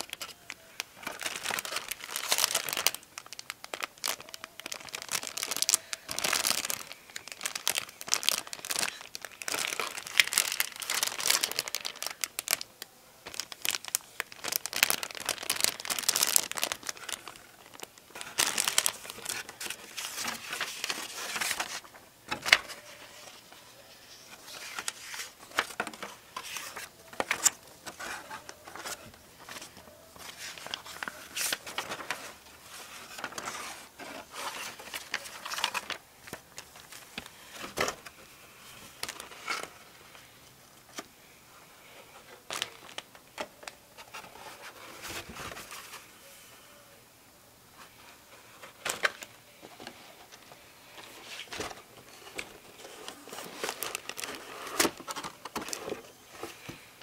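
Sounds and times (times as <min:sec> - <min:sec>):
plastic bags crinkling: 0:00.0 - 0:23.0, 0:24.5 - 0:38.2, 0:38.9 - 0:39.8, 0:42.3 - 0:44.3, 0:50.3 - 0:56.8
paper pages rustling: 0:13.2 - 0:38.2.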